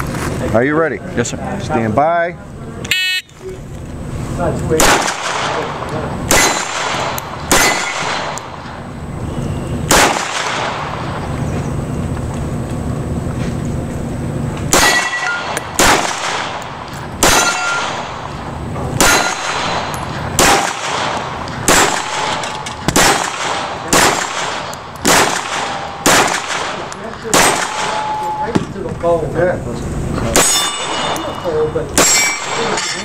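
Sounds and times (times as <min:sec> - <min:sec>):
pistol shots: 0:04.7 - 0:08.7, 0:09.8 - 0:11.2, 0:14.7 - 0:28.2, 0:32.0 - 0:32.8
steel target ringing: 0:05.2 - 0:11.2, 0:14.7 - 0:28.6, 0:30.3 - 0:33.0.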